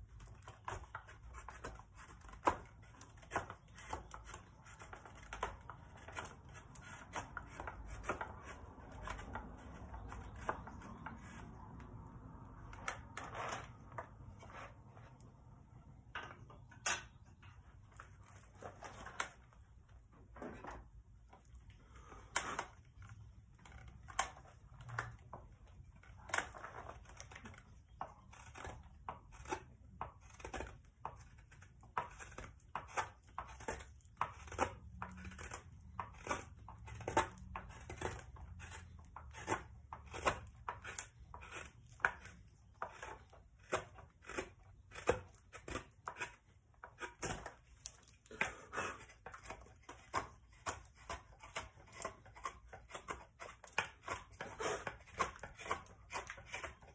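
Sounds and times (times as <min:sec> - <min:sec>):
knife scraping wood shavings: 0:00.2 - 0:11.6, 0:25.8 - 0:56.9.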